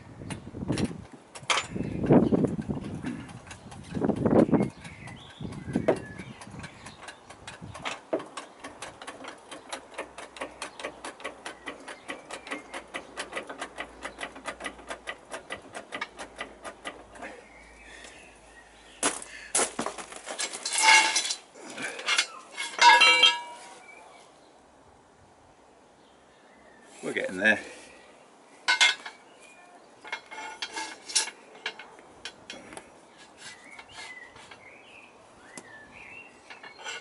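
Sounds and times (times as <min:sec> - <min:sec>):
metal clanks and scrapes: 0:00.7 - 0:04.8, 0:05.5 - 0:17.4, 0:20.0 - 0:23.9, 0:28.6 - 0:29.2, 0:30.0 - 0:34.7, 0:36.4 - 0:37.0.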